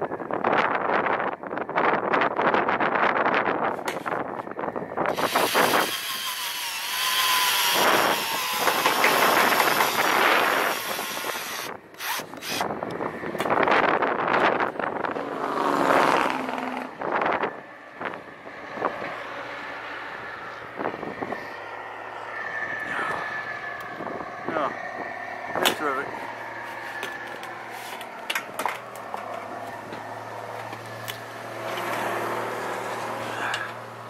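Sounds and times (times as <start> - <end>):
cordless drill driving screws: 5.1 - 12.7.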